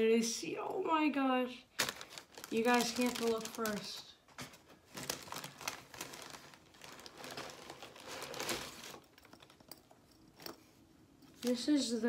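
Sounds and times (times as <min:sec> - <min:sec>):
tissue paper rustling and crinkling: 0:01.7 - 0:09.5.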